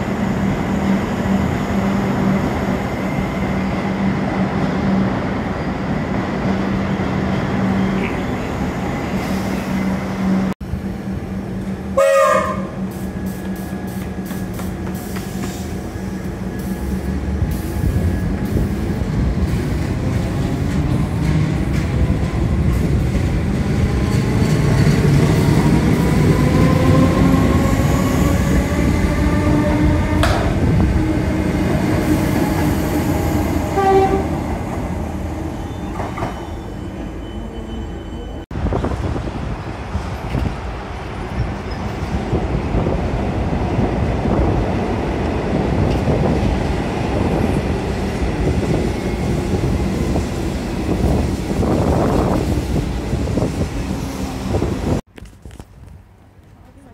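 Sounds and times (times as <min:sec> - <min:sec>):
train horn blast: 0:12.0 - 0:12.8, 0:33.7 - 0:34.4.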